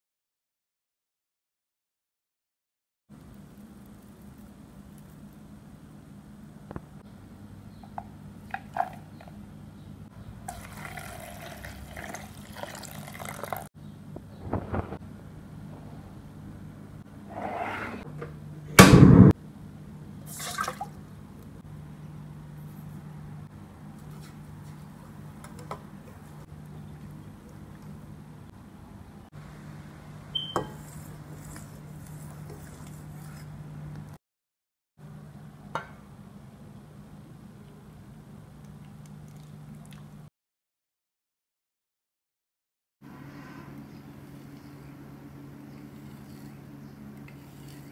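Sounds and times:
water pouring into bowl: 10.5 - 13.7, 20.3 - 21.0
steady low hum: 13.8 - 20.3.

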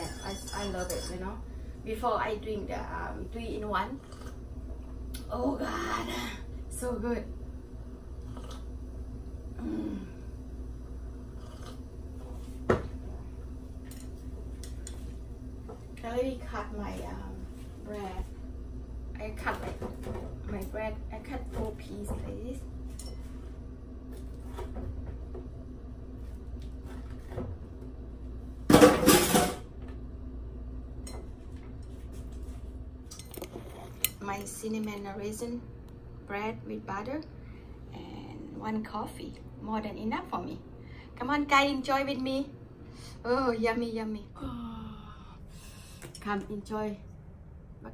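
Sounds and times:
low room hum: 0.0 - 47.9.

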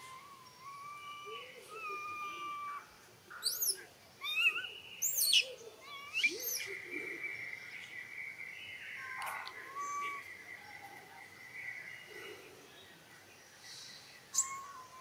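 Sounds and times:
birds whistling long notes: 0.0 - 6.8, 8.3 - 11.0, 13.7 - 15.0.

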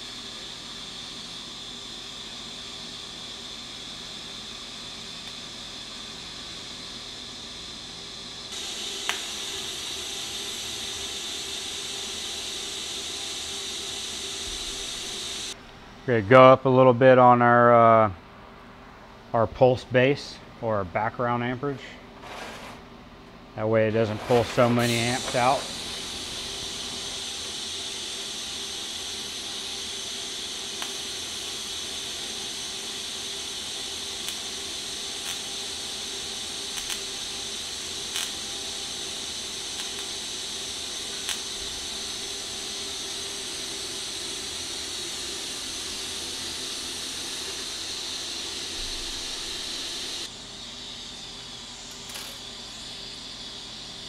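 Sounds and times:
welding arc hissing: 8.4 - 15.6, 23.8 - 53.2.

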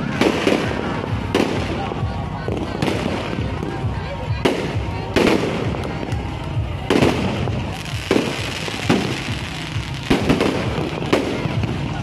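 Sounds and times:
fireworks bangs: 0.0 - 12.0
fireworks crackle: 0.0 - 12.0.

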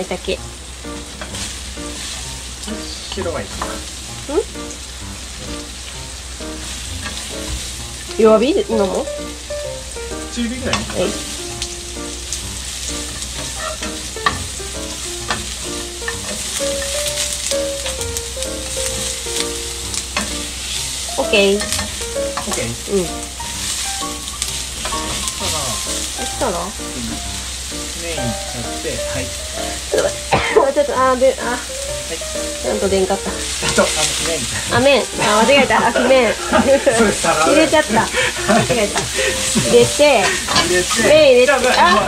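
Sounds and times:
mushrooms sizzling in frying pan: 0.0 - 42.0
tongs clicking against pan: 21.6 - 22.6.

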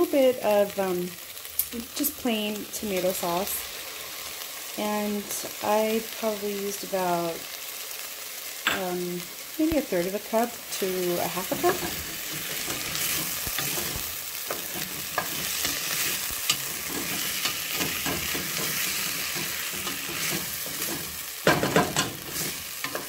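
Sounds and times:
food sizzling in a pot: 0.0 - 23.0
wooden spoon scraping pot: 11.2 - 23.0.

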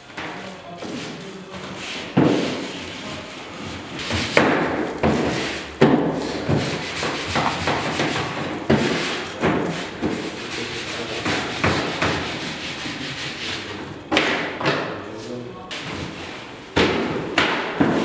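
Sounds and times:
dough thumping on wooden workbench: 16.8 - 18.0.

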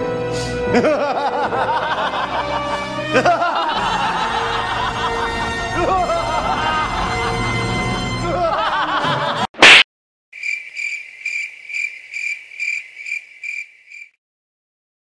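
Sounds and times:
music: 0.0 - 9.4
laughter: 0.7 - 7.5, 8.2 - 9.5
cricket chirping sound effect: 10.4 - 14.2.

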